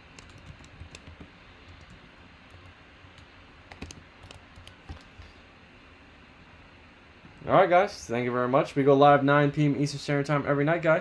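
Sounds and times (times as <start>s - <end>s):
computer keyboard clicks: 0.1s - 5.2s.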